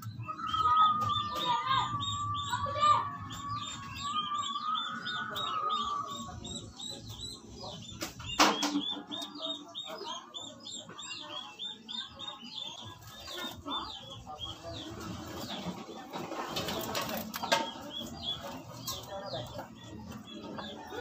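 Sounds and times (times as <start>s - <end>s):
small bird chirping: 0.0s - 21.0s.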